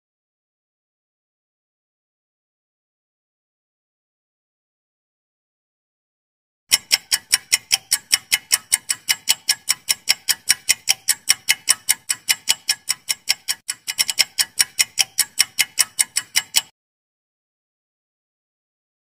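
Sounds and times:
fast clock ticking: 0:06.7 - 0:16.7.

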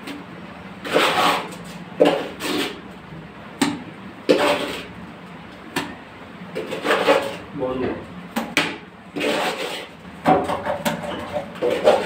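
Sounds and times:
brush scraping mortar: 0:00.8 - 0:02.8, 0:04.3 - 0:04.9, 0:09.1 - 0:10.0, 0:11.0 - 0:12.0.

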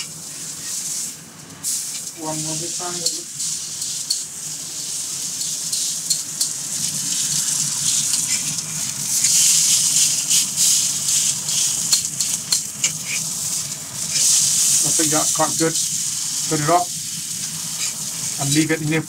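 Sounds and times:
steak sizzling in a pan: 0:00.0 - 0:19.0
metal tongs clicking on a pan: 0:03.8 - 0:04.3, 0:05.4 - 0:06.6, 0:08.0 - 0:08.6, 0:11.8 - 0:13.2.

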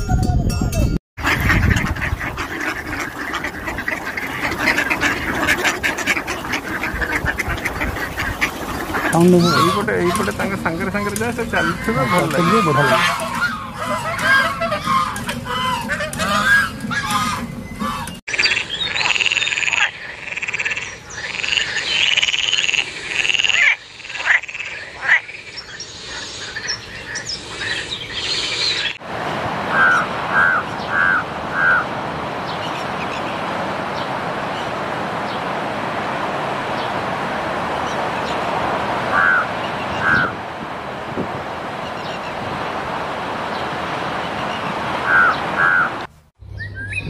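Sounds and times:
chorus of high animal calls: 0:01.2 - 0:25.2, 0:29.7 - 0:33.4, 0:39.0 - 0:40.4, 0:44.4 - 0:46.1
crow cawing: 0:29.7 - 0:31.9, 0:39.1 - 0:40.4.

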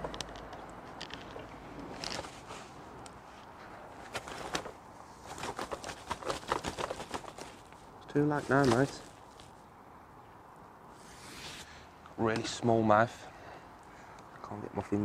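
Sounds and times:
fishing tackle clicks and rustles: 0:00.0 - 0:09.6.

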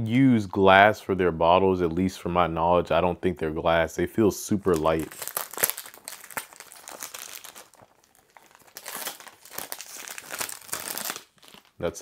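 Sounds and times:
plastic wrap crinkling: 0:04.5 - 0:12.0.

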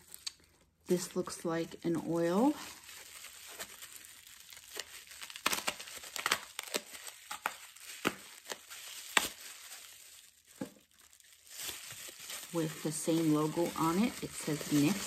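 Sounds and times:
wrapping crinkling and rustling: 0:00.0 - 0:15.0
wrapping snap: 0:04.5 - 0:10.7.

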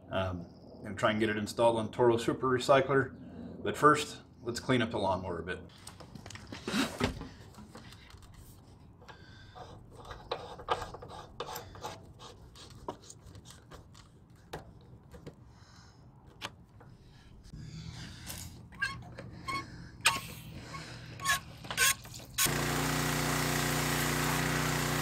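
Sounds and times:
hose coupling clicking and rubbing: 0:07.5 - 0:15.4, 0:16.2 - 0:17.0, 0:21.2 - 0:22.5.

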